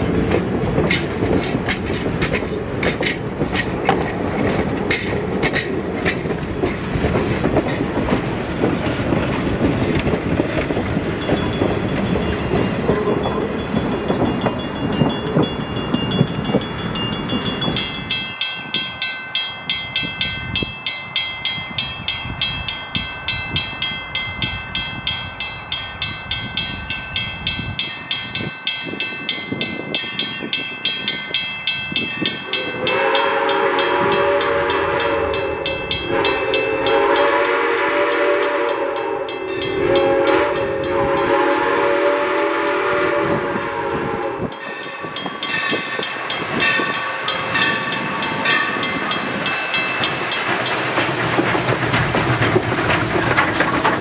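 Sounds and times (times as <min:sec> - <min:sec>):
crossing bell dinging: 0:00.0 - 0:43.0, 0:43.6 - 0:54.0
steam locomotive whistle: 0:32.4 - 0:44.7.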